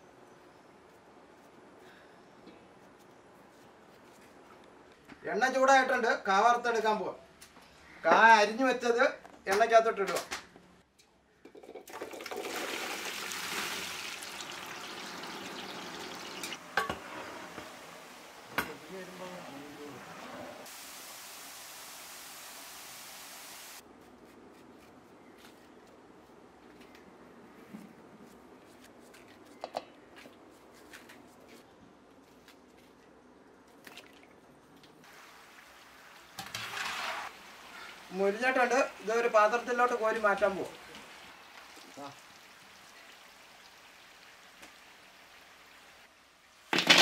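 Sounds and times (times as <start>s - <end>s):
food frying in hot oil: 12.1s - 18.8s, 35.1s - 46.1s
pieces dropping into steel bowl: 46.7s - 47.0s.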